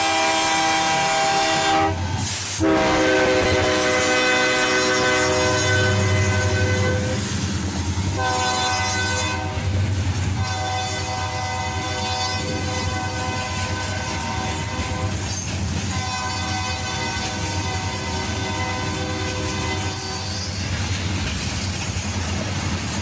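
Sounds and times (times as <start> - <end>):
locomotive air horn blasts: 0.0 - 7.3, 8.2 - 9.8, 10.4 - 15.2, 15.9 - 20.4
train wheels clacking over rail joints: 7.2 - 23.0.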